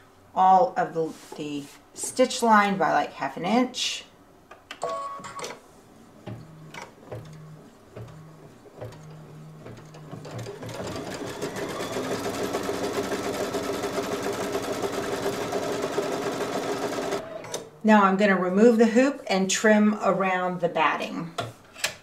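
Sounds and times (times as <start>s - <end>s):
machine hums and clicks: 4.5s - 12.3s, 16.8s - 17.8s.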